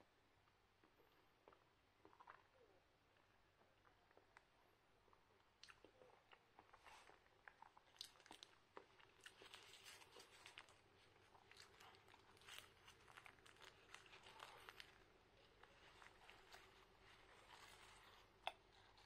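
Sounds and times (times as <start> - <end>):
man biting and chewing: 5.6 - 19.0
plastic wrapper crinkling: 9.3 - 19.0.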